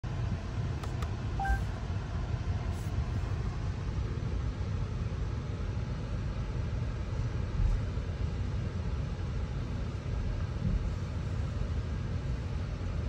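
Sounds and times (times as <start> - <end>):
low car cabin rumble: 0.1 - 4.0
rising two-note chime: 1.4 - 1.7.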